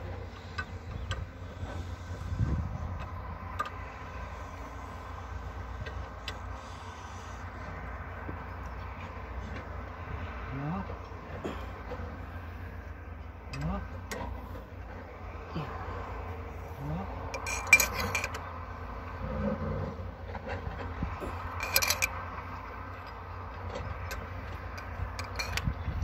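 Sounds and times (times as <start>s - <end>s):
hand tools clinking on metal: 17.3s - 18.4s, 21.2s - 22.2s, 22.9s - 25.7s.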